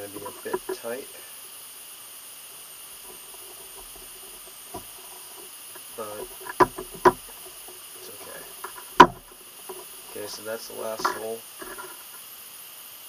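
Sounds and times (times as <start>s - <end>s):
person speaking: 0.0s - 1.3s, 5.8s - 11.8s
leather stitching handling: 3.0s - 12.0s.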